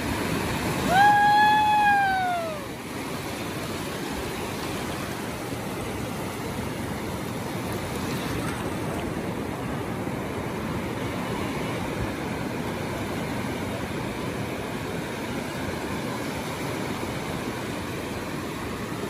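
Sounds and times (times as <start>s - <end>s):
waves breaking on sand: 0.0s - 19.0s
high cry sliding downward: 0.8s - 2.8s.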